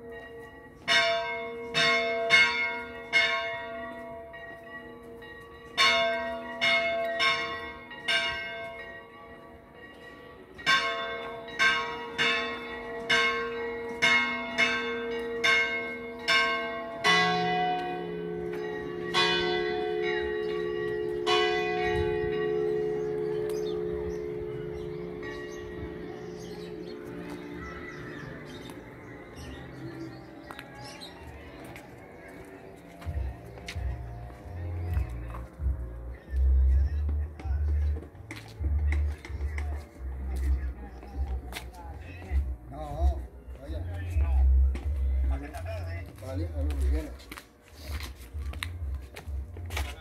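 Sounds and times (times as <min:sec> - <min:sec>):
higher church bell strikes: 0:00.0 - 0:29.6
deeper bell striking slowly: 0:00.0 - 0:31.1.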